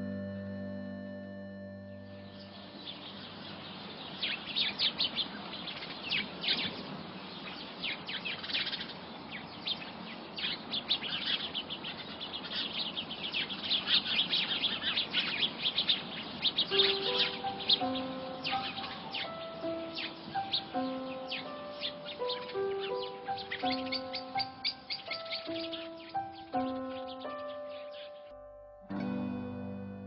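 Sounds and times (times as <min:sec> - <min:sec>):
music notes: 0:00.0 - 0:04.2, 0:16.7 - 0:30.0
small birds chirping: 0:00.0 - 0:28.4
steady background hiss: 0:00.6 - 0:28.2.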